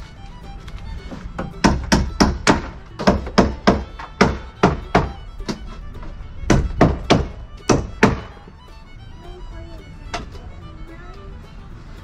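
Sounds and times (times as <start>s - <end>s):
faint background music: 0.0s - 12.0s
hammer driving nails into wood: 1.4s - 8.4s.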